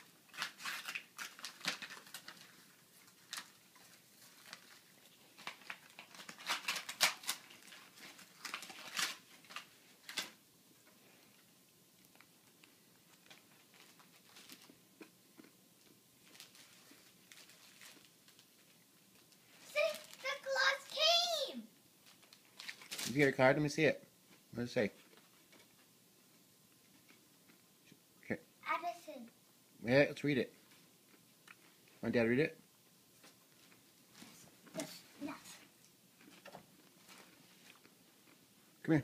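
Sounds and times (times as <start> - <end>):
wrapping paper tearing and rustling: 0.0 - 10.4, 13.1 - 14.8, 16.2 - 23.4.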